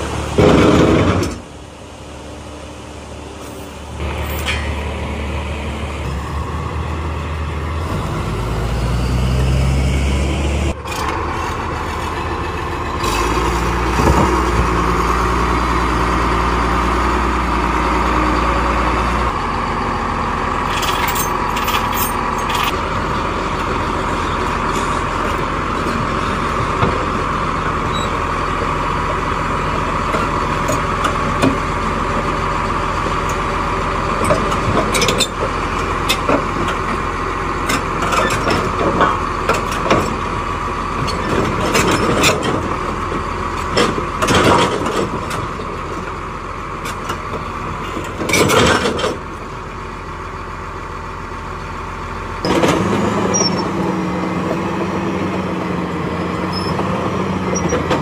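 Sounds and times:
bulldozer diesel engine running: 0.0 - 58.0
steel tracks clanking: 3.4 - 5.2, 18.9 - 32.4, 52.4 - 58.0.

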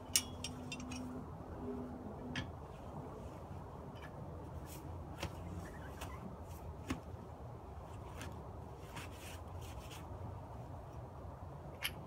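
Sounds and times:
lug wrench metallic clicks: 0.0 - 1.1
low outdoor rumble: 0.0 - 12.0.

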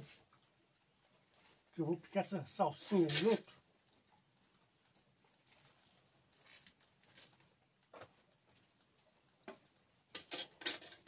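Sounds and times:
leafy greens rustling: 5.3 - 8.8.

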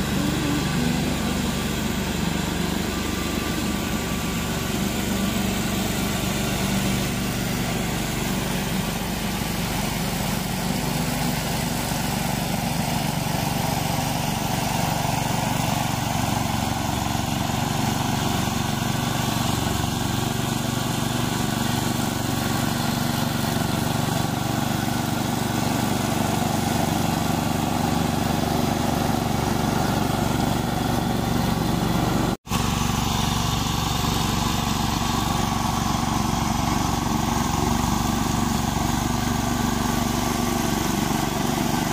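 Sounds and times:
lawn mower engine cutting grass: 0.0 - 41.9.

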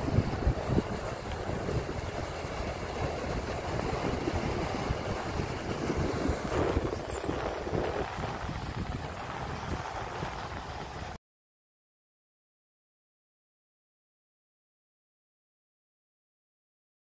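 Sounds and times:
wind buffeting microphone: 0.0 - 11.2.

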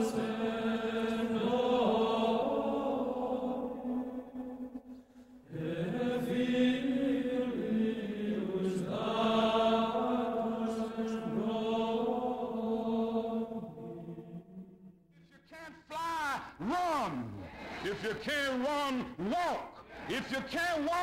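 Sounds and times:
chanting voices sustained notes: 0.0 - 14.9, 15.8 - 21.0.

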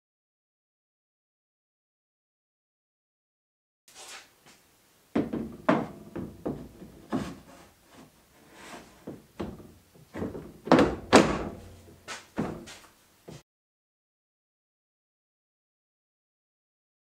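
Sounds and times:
metal frame knocking and clattering: 5.2 - 7.5, 9.0 - 12.8.

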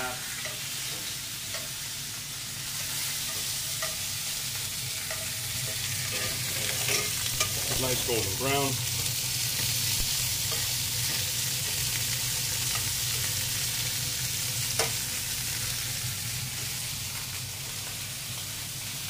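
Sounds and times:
sausages sizzling in oil: 0.0 - 19.0
metal tongs clicking on pan: 5.0 - 7.9, 14.7 - 15.0.

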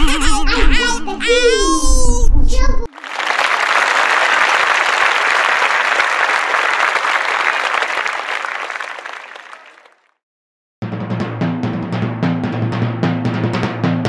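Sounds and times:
crowd applause: 2.9 - 10.1.

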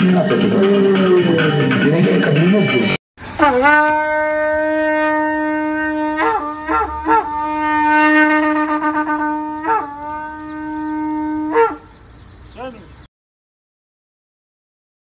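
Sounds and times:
shofar blasts: 3.3 - 11.9.

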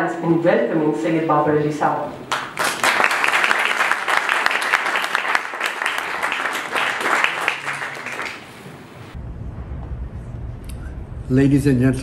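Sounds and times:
audience applauding: 2.3 - 8.8.

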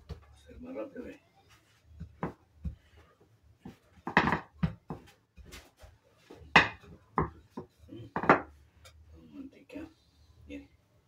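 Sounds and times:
rolling pin on wooden table: 3.6 - 5.7, 6.4 - 8.5.

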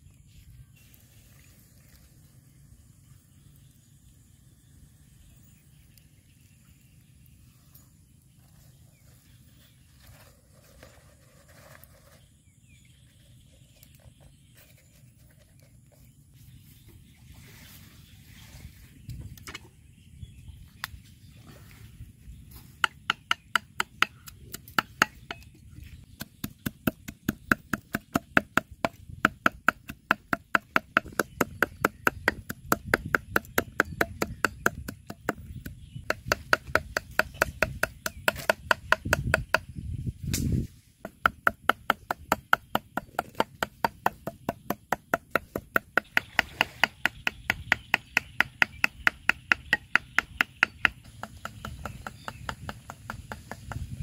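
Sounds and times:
cleaver chopping meat on wood: 22.8 - 25.5, 26.1 - 39.7, 41.0 - 54.0.

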